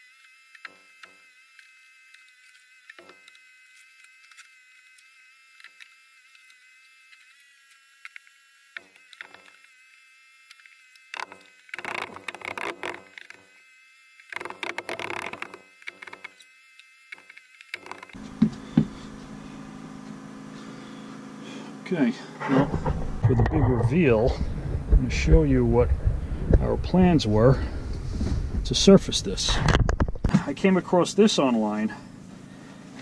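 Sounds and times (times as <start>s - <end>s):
knocks and scraping of plywood panel: 14.4s - 16.3s, 22.4s - 25.1s
faint high whine: 17.8s - 29.6s.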